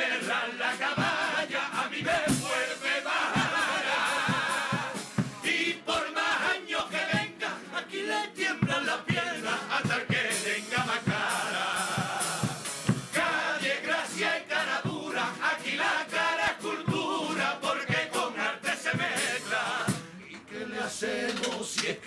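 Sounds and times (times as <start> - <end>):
acoustic guitar: 0.0 - 22.0
men singing in unison: 0.0 - 22.0
sharp percussion strokes: 0.2 - 5.6, 9.9 - 13.6.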